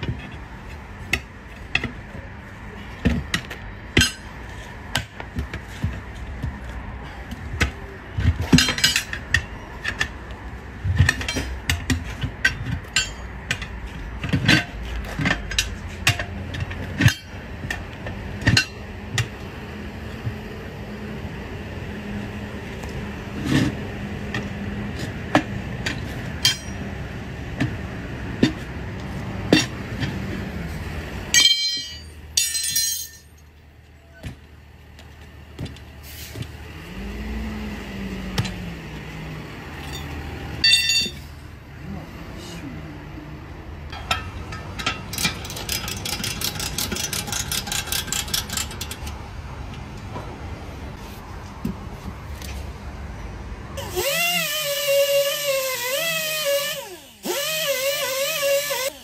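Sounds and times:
tire irons clinking on wheel rim: 0.0s - 20.4s, 22.8s - 30.5s, 31.2s - 36.5s, 39.8s - 41.4s, 43.9s - 50.2s.

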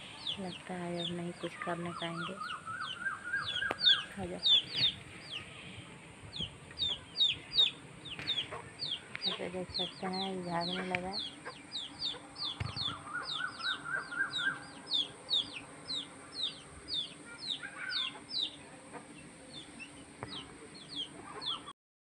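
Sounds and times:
hen calling: 0.0s - 5.8s, 6.8s - 18.6s
chicks peeping: 0.0s - 21.7s.

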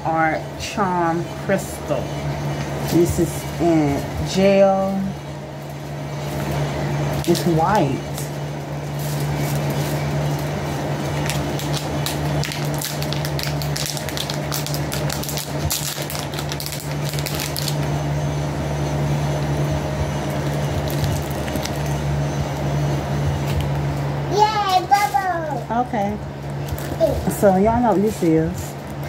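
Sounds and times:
electric fan humming: 0.0s - 29.0s
plastic packaging crinkling: 8.9s - 17.9s, 20.2s - 22.0s, 26.4s - 29.0s.

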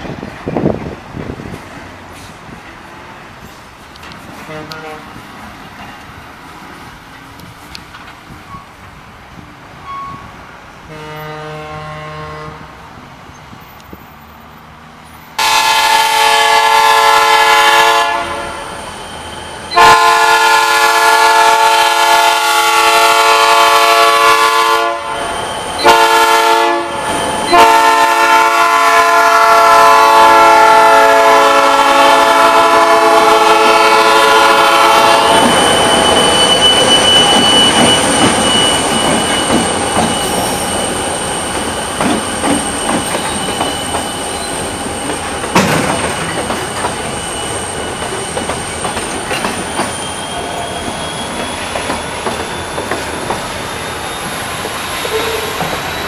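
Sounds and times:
passing train rumble: 0.0s - 56.0s
steel wheels squealing on rail: 3.3s - 56.0s
locomotive air horn blasts: 4.4s - 5.2s, 10.9s - 12.7s, 15.4s - 18.7s, 19.7s - 35.6s.

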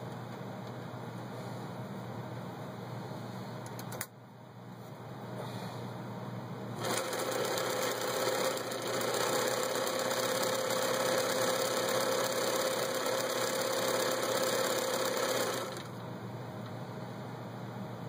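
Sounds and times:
sewing machine stitching: 6.8s - 16.0s.

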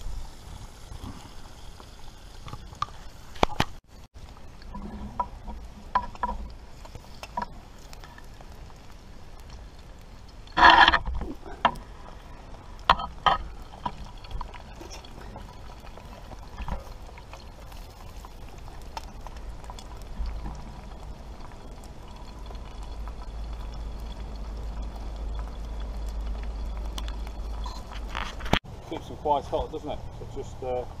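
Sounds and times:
embers hissing and crackling: 0.0s - 31.0s
sharp clicks and knocks: 4.6s - 8.1s.

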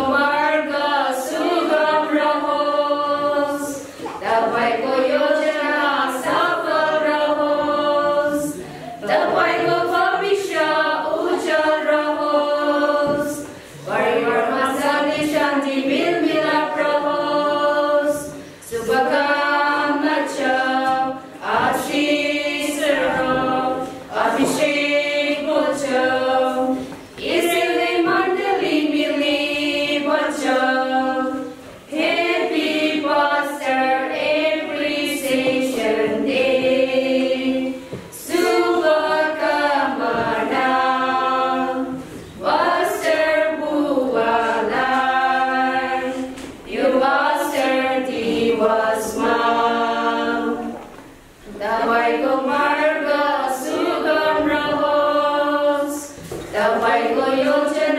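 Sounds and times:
women's choir singing a cappella: 0.0s - 57.9s.

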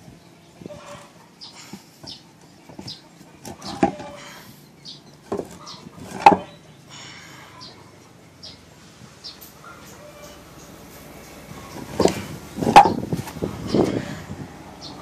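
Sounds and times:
wooden billets knocking together: 5.3s - 6.5s, 12.0s - 13.0s.

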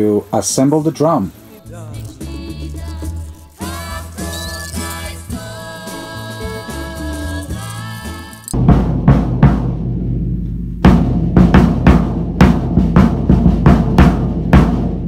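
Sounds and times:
person singing song: 1.4s - 8.6s
drum kit playing groove: 1.6s - 15.0s.

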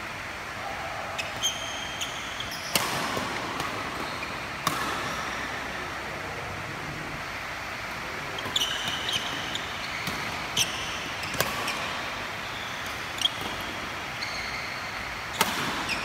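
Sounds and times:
shoes squeaking on court: 1.2s - 2.9s, 3.9s - 4.4s, 8.4s - 13.5s, 14.2s - 16.0s
racket hitting shuttlecock: 1.2s - 5.8s, 10.0s - 12.0s, 15.3s - 16.0s.

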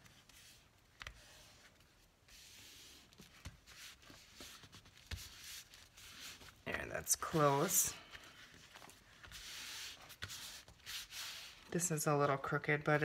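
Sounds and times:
hands rubbing paper: 0.0s - 11.7s.

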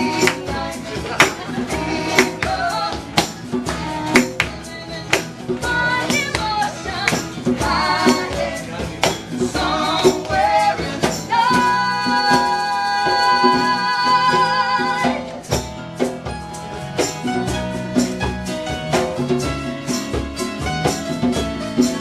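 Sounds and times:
person singing: 0.0s - 15.4s
acoustic guitars: 0.0s - 22.0s.

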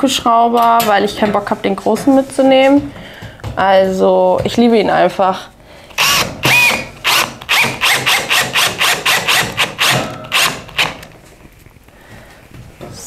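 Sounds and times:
cordless drill whining in short bursts: 6.0s - 11.0s.

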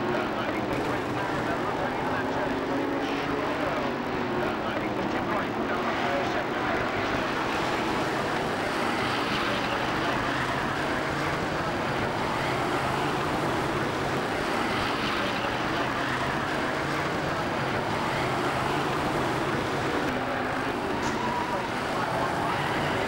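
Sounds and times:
racing car engines: 0.0s - 23.0s.

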